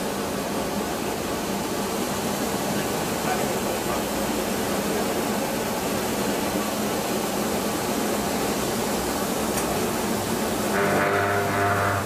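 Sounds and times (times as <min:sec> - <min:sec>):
machine motor and belts running: 0:07.5 - 0:12.0.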